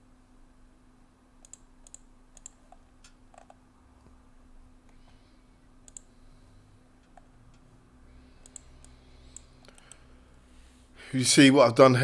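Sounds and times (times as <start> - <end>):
faint steady hum: 0.0 - 12.0
mouse and keyboard clicks: 1.4 - 3.6, 5.9 - 6.1, 8.4 - 10.0.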